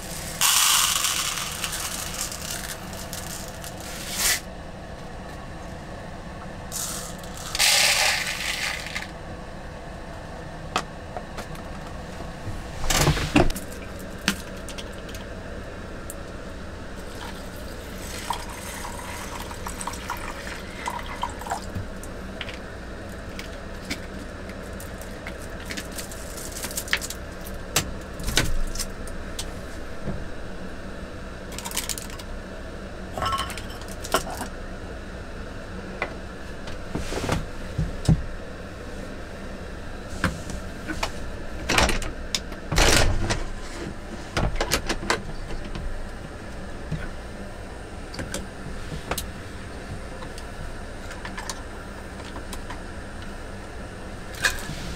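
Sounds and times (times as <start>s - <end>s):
rice grains poured into pot: 0.0s - 4.4s, 6.7s - 9.1s.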